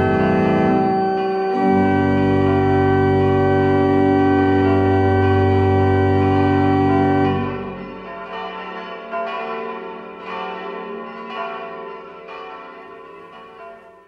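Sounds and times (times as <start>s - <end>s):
organ chord: 0.0s - 8.1s
church bells ringing: 0.0s - 14.0s.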